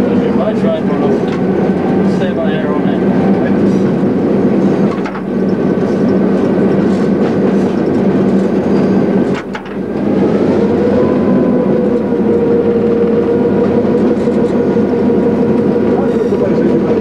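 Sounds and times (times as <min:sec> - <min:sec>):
diesel engine drone: 0:00.0 - 0:17.0
wheels rumbling on rail: 0:00.0 - 0:17.0.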